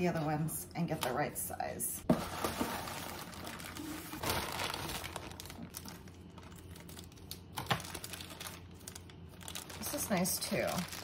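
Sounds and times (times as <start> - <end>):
plastic packaging crinkling: 2.2 - 11.0.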